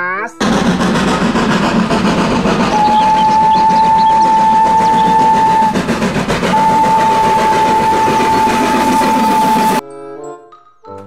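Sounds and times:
moving train noise: 0.4s - 9.8s
steam locomotive whistle blasts: 1.2s - 9.8s.

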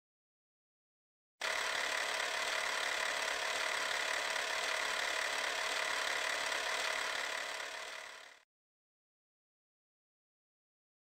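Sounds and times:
film projector whirring: 1.4s - 8.4s.

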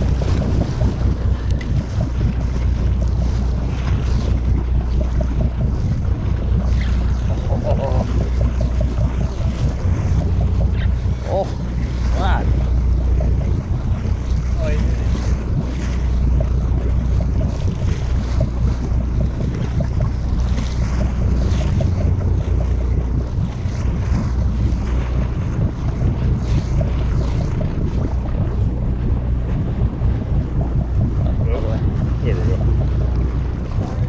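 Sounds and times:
boat engine humming: 0.0s - 34.0s
sea sloshing against hull: 0.0s - 34.0s
wind buffeting microphone: 0.0s - 34.0s.

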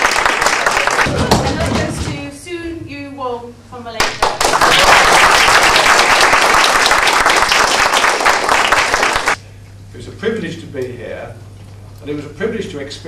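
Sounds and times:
audience applauding: 0.0s - 1.8s, 4.0s - 9.4s.

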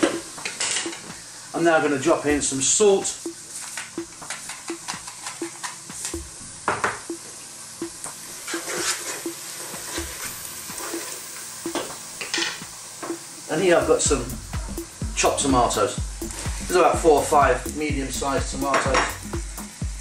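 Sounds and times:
onions sizzling in hot oil: 0.0s - 20.0s
wooden spoon scraping pan: 8.4s - 11.2s.

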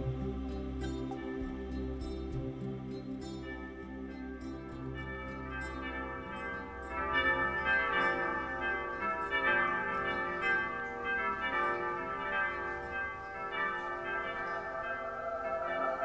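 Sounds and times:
ringing bell tones: 3.2s - 16.0s.

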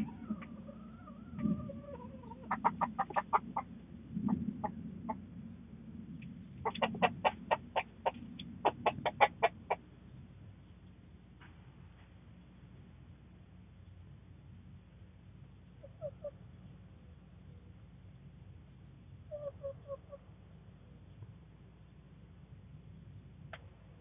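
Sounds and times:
chickens clucking: 0.0s - 5.2s, 6.6s - 9.8s
steady low hum: 0.0s - 24.0s.

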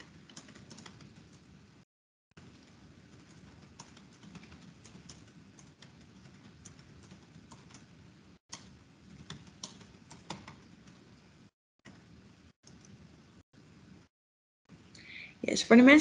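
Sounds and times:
computer keyboard typing: 0.0s - 1.6s, 2.5s - 11.1s.

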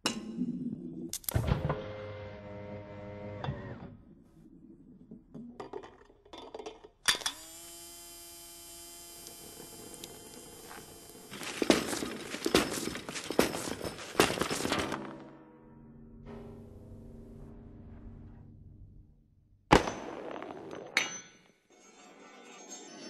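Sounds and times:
car parts clattering: 11.4s - 15.2s.

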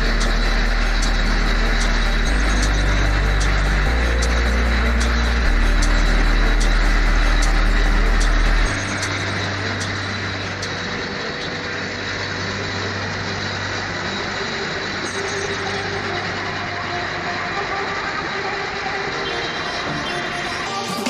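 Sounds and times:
drum mixer running: 0.0s - 16.7s
heavy low rumble: 0.0s - 18.4s.

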